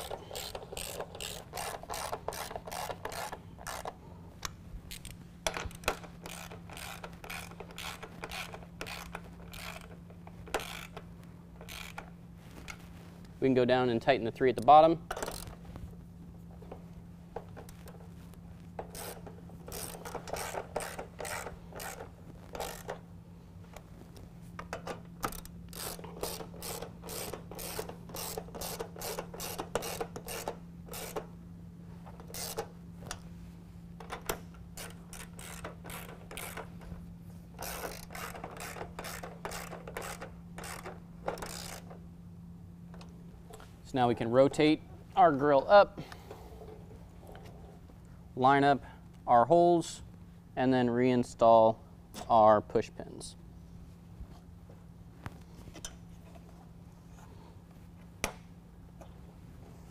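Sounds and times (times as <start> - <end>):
socket ratchet clicking: 0.0 - 4.0, 4.9 - 12.1, 15.1 - 15.6, 18.8 - 23.0, 24.6 - 31.3, 32.2 - 33.2, 34.0 - 36.8, 37.6 - 42.0.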